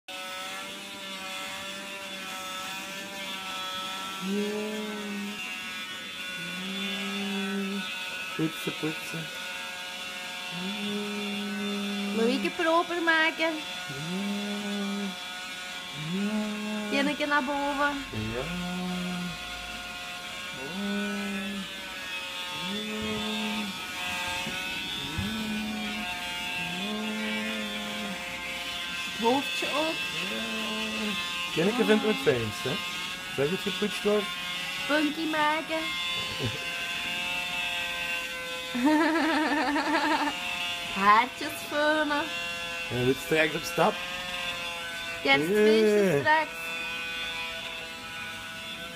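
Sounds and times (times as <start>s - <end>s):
handheld vacuum cleaner running: 0.1s - 48.9s
lower vacuum tone: 10.5s - 15.3s, 15.9s - 34.2s.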